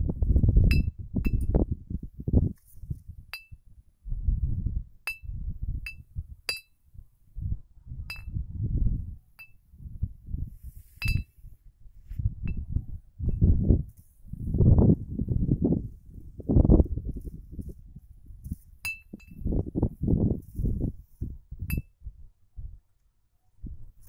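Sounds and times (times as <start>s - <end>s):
wind rumbling on microphone: 0.0s - 24.0s
glass bottle clinking: 5.9s - 6.7s, 11.0s - 11.3s, 18.9s - 19.4s.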